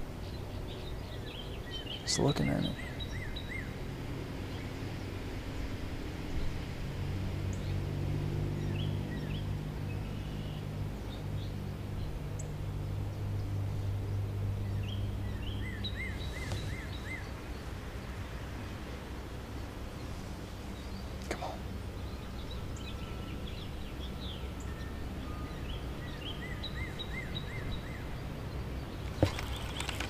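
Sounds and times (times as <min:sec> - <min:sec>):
small birds chirping: 0:00.0 - 0:03.8, 0:08.5 - 0:18.3, 0:20.0 - 0:30.0.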